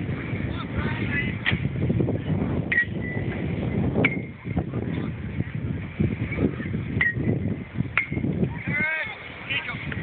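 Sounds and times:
choppy low rumble: 0.0 - 10.0
faint distant voices: 3.9 - 10.0.

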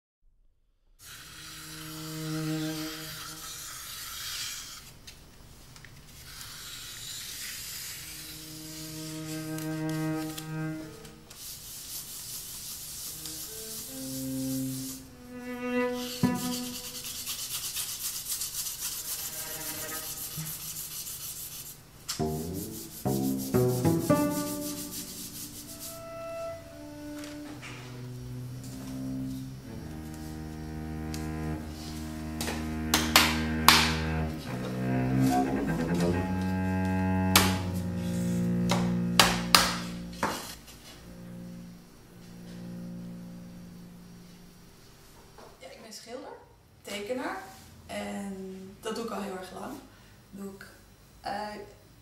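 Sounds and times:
low bowed note: 8.3 - 11.2, 13.2 - 17.0, 22.2 - 44.8
brush scrubbing on canvas: 11.4 - 15.0, 16.2 - 21.8.

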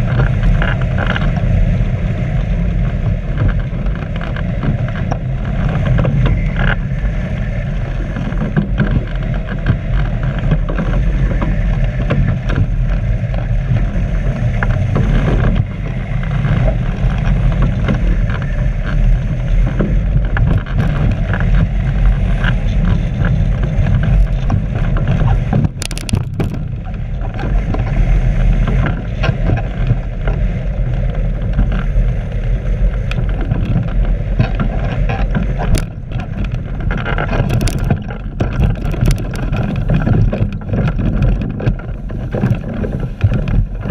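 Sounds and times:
wind buffeting microphone: 0.0 - 43.9
brief crackle: 23.9 - 26.7, 33.1 - 43.9.

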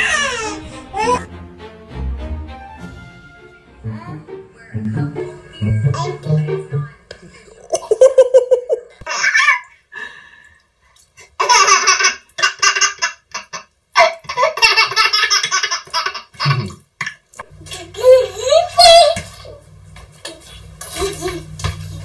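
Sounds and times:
baby laughing: 0.0 - 1.3, 7.7 - 9.7, 11.4 - 16.7, 17.7 - 19.2.

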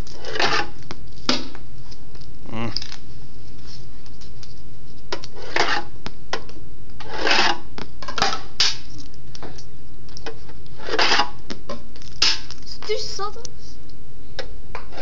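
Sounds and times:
bearings clattering and rolling: 5.0 - 12.9.

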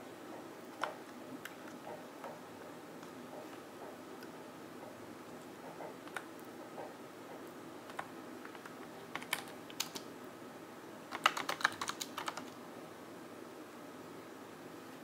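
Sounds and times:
keyboard typing: 7.8 - 10.1, 11.1 - 12.6.

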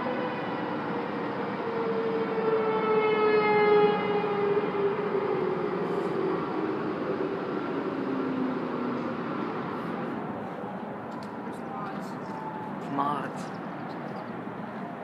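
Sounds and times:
warning siren wailing: 0.0 - 12.8
city traffic: 0.0 - 15.0.

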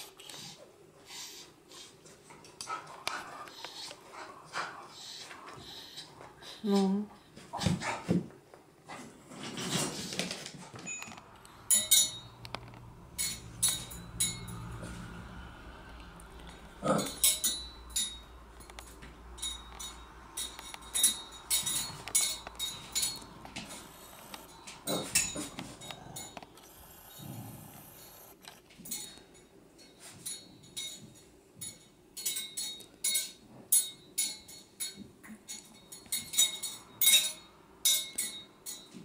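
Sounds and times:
metal spoon clinking on steel chair legs: 17.0 - 23.4.

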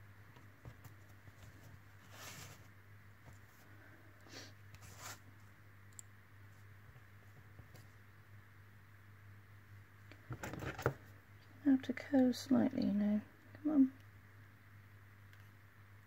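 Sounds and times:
low steady hum: 0.0 - 16.0
wire rustling and scraping: 0.6 - 3.8, 4.7 - 5.4.

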